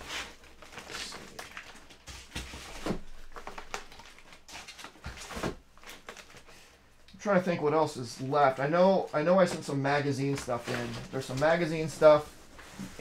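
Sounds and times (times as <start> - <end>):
packing rustling: 0.0 - 6.5.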